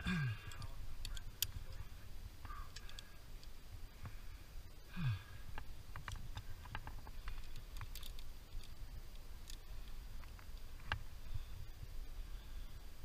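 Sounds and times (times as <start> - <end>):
climbing hardware clicking: 0.2 - 4.1, 5.6 - 11.1.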